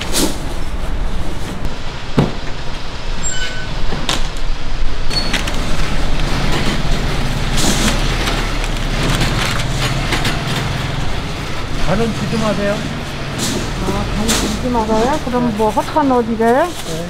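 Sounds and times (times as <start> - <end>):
traffic and street noise: 0.0 - 17.0
low engine hum: 4.6 - 16.8
plastic wrap and paper crinkling: 14.6 - 17.0.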